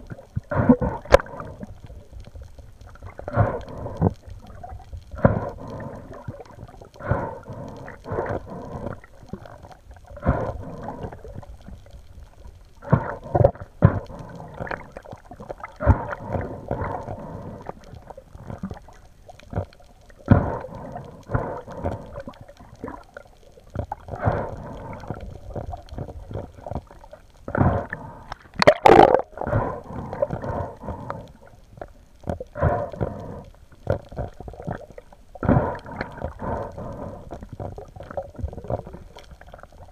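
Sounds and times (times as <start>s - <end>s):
underwater gurgling: 0.0s - 39.9s
sharp underwater burst: 28.6s - 29.9s.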